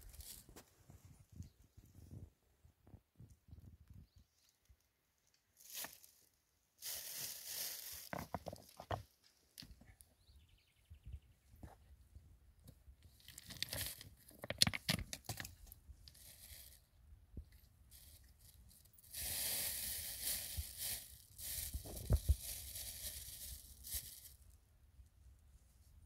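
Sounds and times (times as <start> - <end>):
rustling and tearing: 6.8 - 8.8, 17.9 - 24.4.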